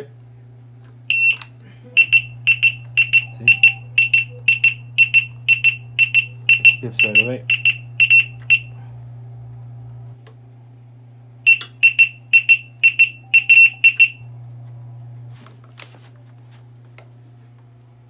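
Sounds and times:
steady low hum: 0.0 - 18.0
short high alarm beeps: 1.1 - 1.4, 2.0 - 8.7, 11.5 - 14.3.

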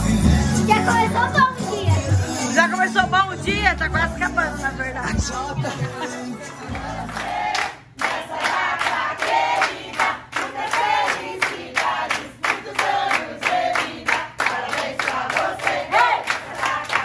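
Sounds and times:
women singing and chanting: 0.1 - 17.0
steady clapping: 6.7 - 17.0.

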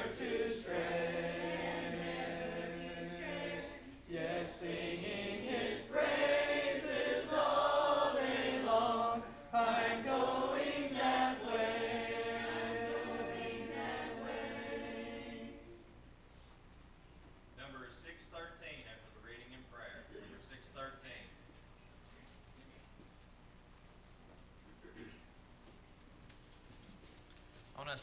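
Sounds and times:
congregation singing a hymn: 0.0 - 15.9.

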